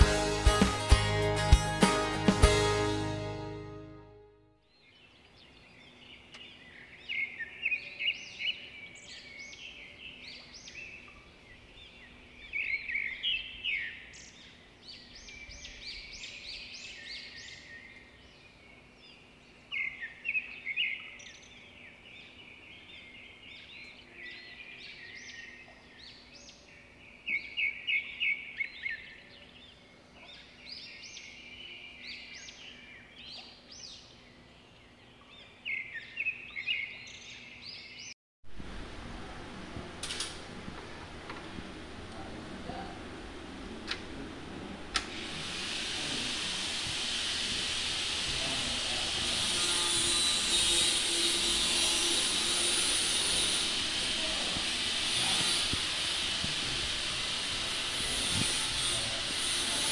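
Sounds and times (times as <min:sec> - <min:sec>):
faint low hum: 0:38.5 - 0:45.2.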